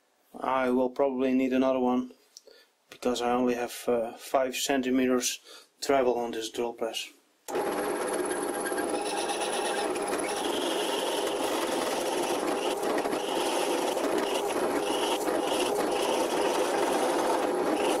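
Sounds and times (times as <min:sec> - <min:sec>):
drill bit scraping wood: 0:07.5 - 0:18.0
drill press motor running: 0:07.5 - 0:18.0.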